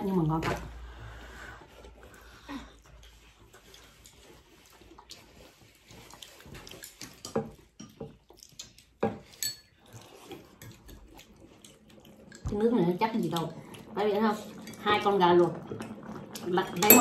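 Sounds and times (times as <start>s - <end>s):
slurping and chewing: 0.9s - 12.5s, 13.2s - 14.8s.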